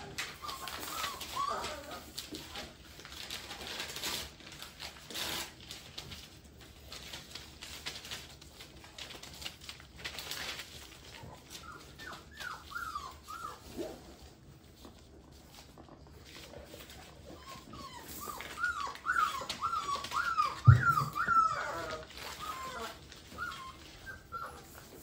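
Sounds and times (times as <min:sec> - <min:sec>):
puppy whimpers: 0:00.0 - 0:02.8, 0:10.2 - 0:14.4, 0:15.2 - 0:25.0
puppy yelp: 0:00.0 - 0:02.8, 0:10.2 - 0:14.1, 0:16.8 - 0:25.0
paws scrabbling on hard floor: 0:00.0 - 0:25.0.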